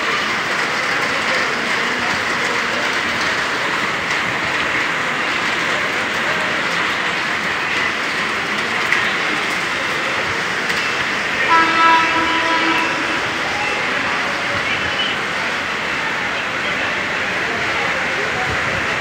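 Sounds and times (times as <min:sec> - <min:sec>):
heavy rain: 0:00.0 - 0:19.0
train horn: 0:11.4 - 0:15.2.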